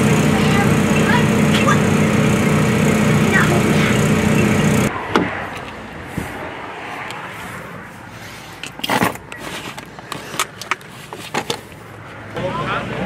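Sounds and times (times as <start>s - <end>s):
steady mechanical hum: 0.0s - 4.9s.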